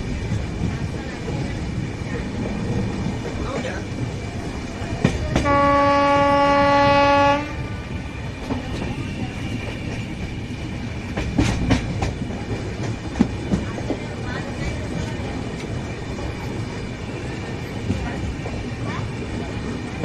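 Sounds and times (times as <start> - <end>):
train rumbling on rails: 0.0 - 20.0
locomotive horn blast: 5.4 - 7.8.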